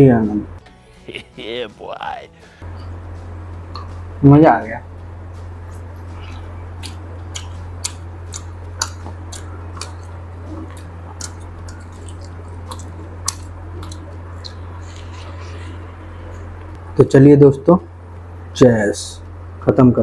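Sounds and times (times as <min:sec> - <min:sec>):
steady low hum: 0:00.0 - 0:20.0
chewing with wet mouth smacks: 0:05.7 - 0:15.1.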